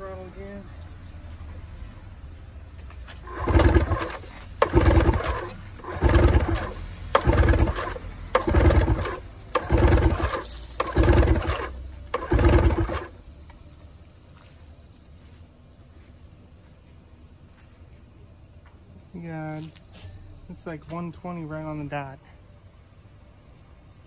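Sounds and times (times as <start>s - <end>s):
outboard engine pull-start cranking: 3.3s - 13.2s.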